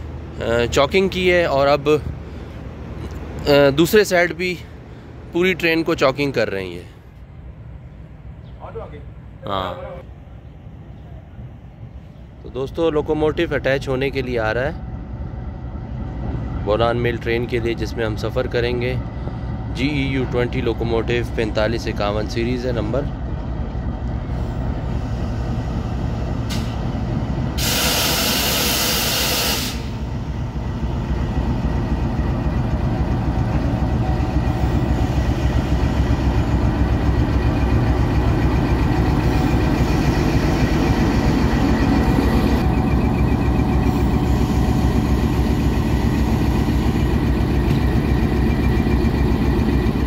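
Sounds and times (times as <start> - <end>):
locomotive engine droning: 0.0 - 50.0
air hissing: 27.6 - 30.1.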